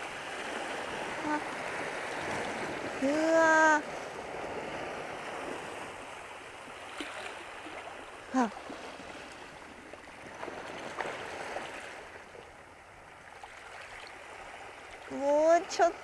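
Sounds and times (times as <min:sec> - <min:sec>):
sighing voice: 0:08.3 - 0:08.6.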